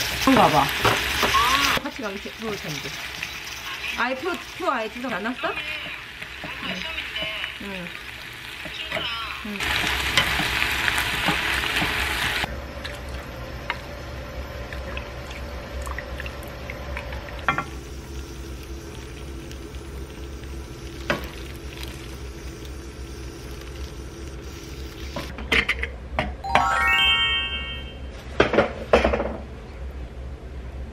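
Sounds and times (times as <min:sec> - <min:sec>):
meat sizzling in a frying pan: 0:00.0 - 0:12.5, 0:17.5 - 0:25.3.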